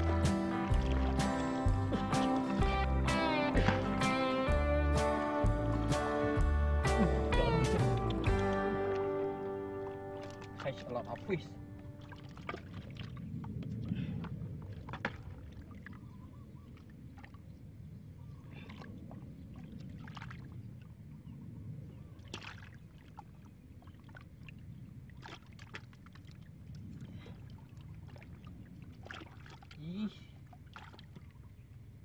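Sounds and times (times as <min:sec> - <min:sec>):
hands splashing in muddy water: 0:00.0 - 0:04.2, 0:07.0 - 0:11.4, 0:12.0 - 0:16.1, 0:18.5 - 0:20.6, 0:22.2 - 0:31.4.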